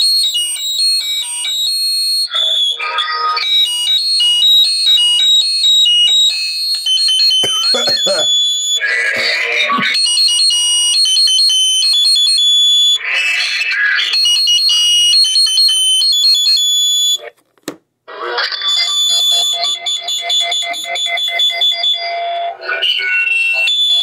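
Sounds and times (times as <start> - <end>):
high-pitched electronic beeping tones: 1.2 - 12.3.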